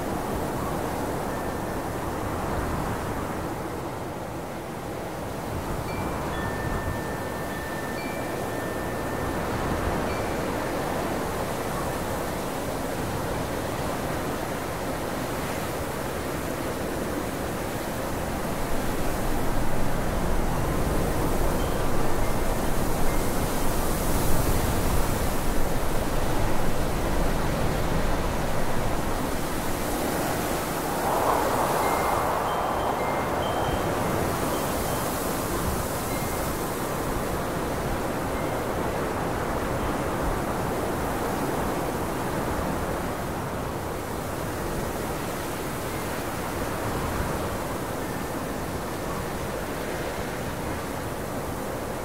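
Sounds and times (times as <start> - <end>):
steady rushing hiss: 16.3 - 37.8.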